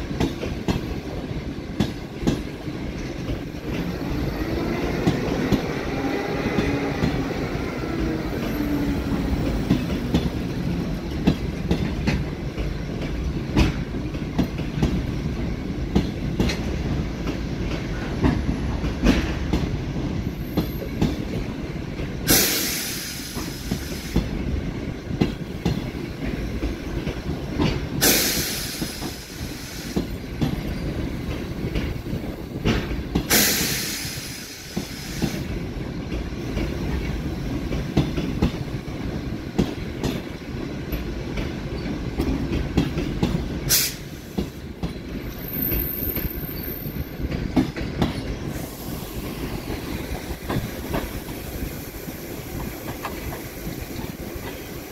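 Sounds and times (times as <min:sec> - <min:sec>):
train coaches rumbling past: 0:00.0 - 0:54.9
loud hiss: 0:22.3 - 0:24.3, 0:28.0 - 0:30.1, 0:33.3 - 0:35.5, 0:43.7 - 0:44.6, 0:48.4 - 0:54.9
wheels clicking over rail joints: 0:34.8 - 0:48.7.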